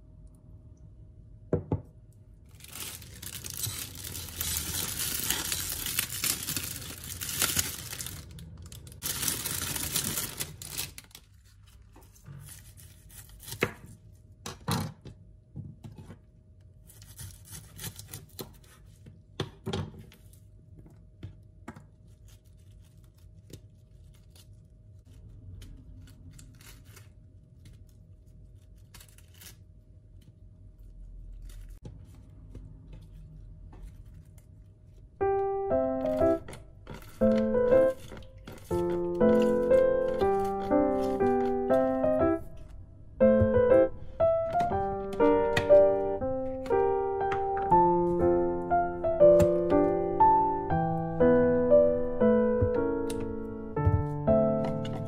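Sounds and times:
plastic bag crinkling: 2.4s - 13.1s, 36.0s - 42.8s
lettuce leaves handled: 2.5s - 13.6s.

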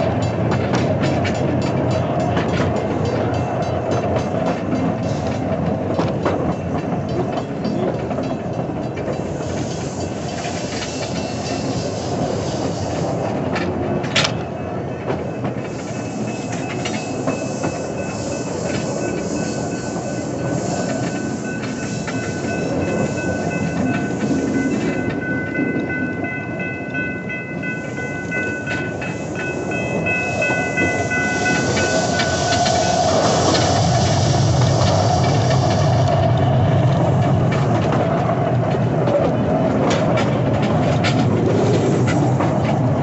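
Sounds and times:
train wheels rumbling on rail: 0.0s - 43.0s
high wheel squeal: 15.6s - 26.4s, 27.3s - 37.7s.

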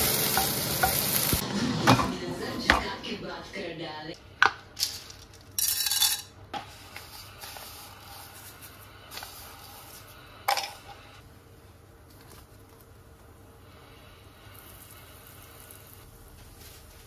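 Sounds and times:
seeds rattling into hot oil: 4.8s - 10.8s, 14.4s - 17.0s.

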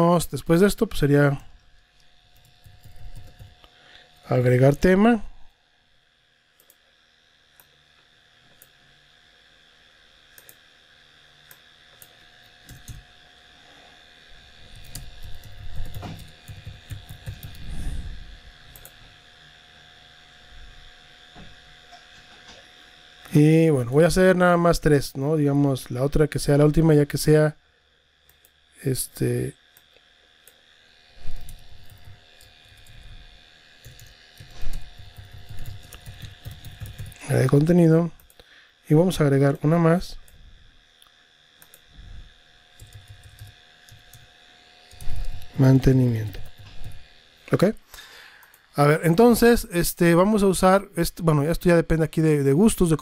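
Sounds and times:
computer mouse clicks: 6.6s - 6.8s, 10.4s - 10.6s, 11.5s - 13.0s, 14.7s - 17.6s, 18.7s - 19.0s, 31.3s - 33.0s, 33.8s - 37.2s, 41.6s - 41.8s, 44.9s - 45.5s
keyboard keystrokes: 14.8s - 17.6s, 33.9s - 37.2s.

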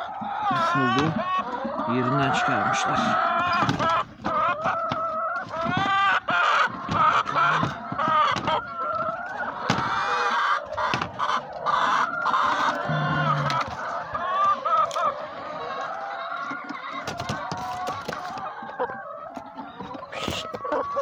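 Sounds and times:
hens clucking: 0.0s - 21.0s
knocks of plastic grating: 6.7s - 9.9s, 10.8s - 11.2s.

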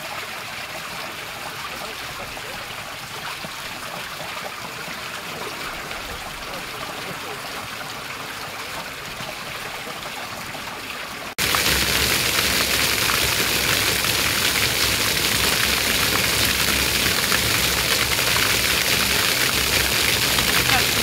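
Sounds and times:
fountain water trickling: 0.0s - 21.0s
water jets splashing on stone: 0.0s - 21.0s.

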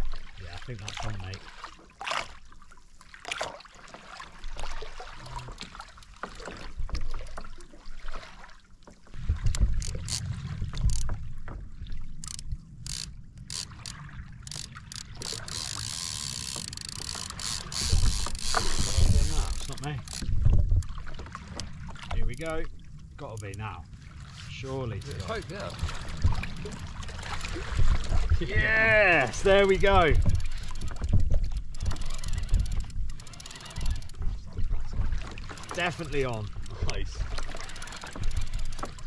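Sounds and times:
water lapping against kayak hull: 0.0s - 39.0s
fishing tackle clicks and knocks: 9.4s - 22.6s, 29.9s - 39.0s.

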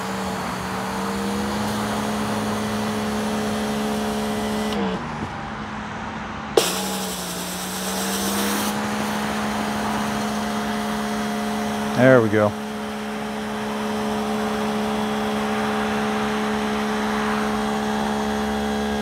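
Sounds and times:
pressure washer motor humming: 0.0s - 5.3s, 6.6s - 19.0s
water spray hissing on concrete: 6.6s - 10.6s.

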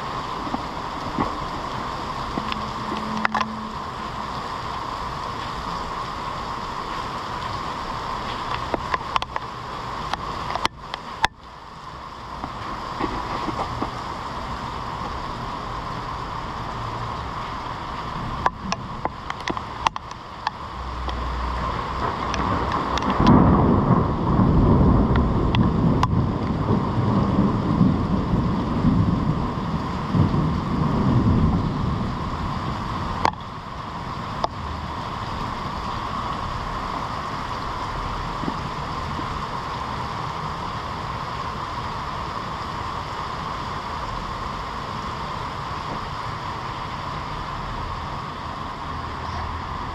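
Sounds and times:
heavy rain on pavement and cars: 0.0s - 49.9s
loud low rumble: 1.4s - 4.7s.

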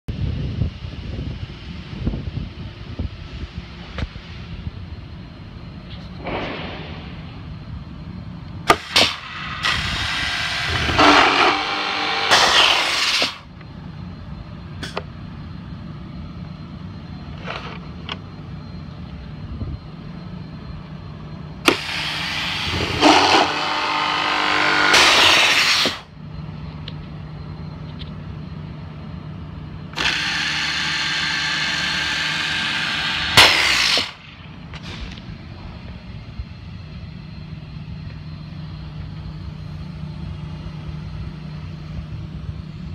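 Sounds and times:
machine motor whine and hiss: 0.1s - 42.9s
steady low hum: 0.1s - 42.9s.

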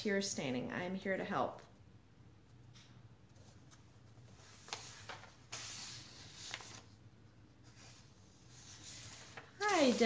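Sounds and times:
paper crackling and rustling: 3.4s - 7.0s, 7.6s - 10.0s.

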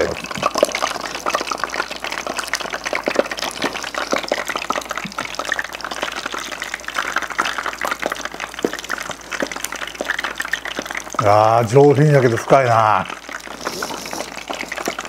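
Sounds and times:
hot oil crackling in fryer: 0.0s - 15.0s.

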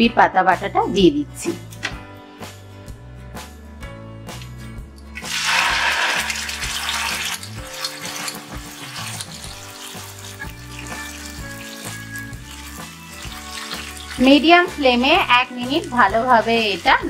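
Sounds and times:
background music: 0.0s - 17.0s
paste sizzling in hot oil: 5.1s - 17.0s.

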